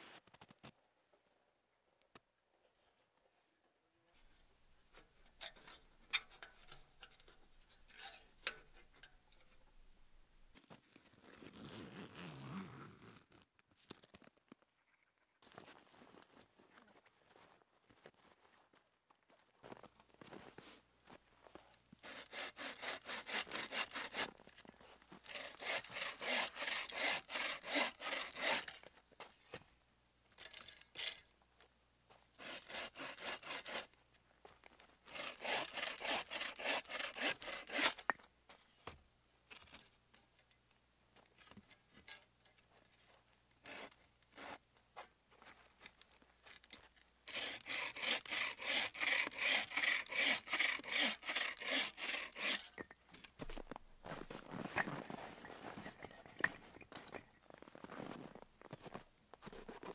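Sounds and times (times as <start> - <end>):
bow saw rasping through branch: 22.0 - 24.4, 25.2 - 28.8, 32.4 - 33.9, 35.1 - 38.2, 43.6 - 44.6, 47.3 - 52.8.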